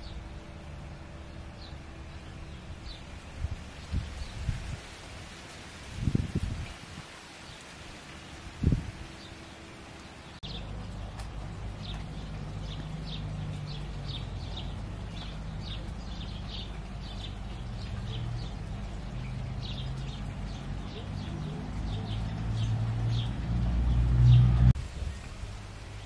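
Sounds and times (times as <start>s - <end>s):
low steady rumble: 0.0s - 5.4s
small birds chirping: 8.6s - 24.7s.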